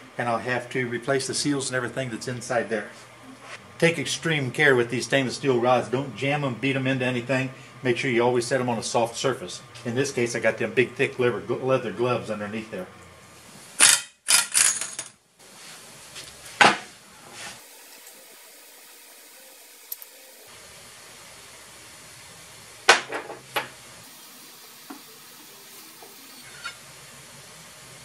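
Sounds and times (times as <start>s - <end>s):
faint steady hiss: 17.2s - 22.7s.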